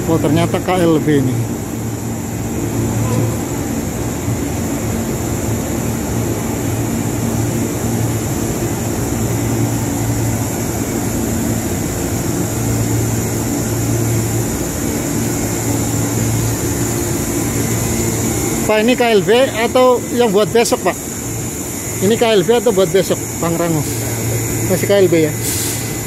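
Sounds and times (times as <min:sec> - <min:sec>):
thin high whine: 0:02.6 - 0:04.0.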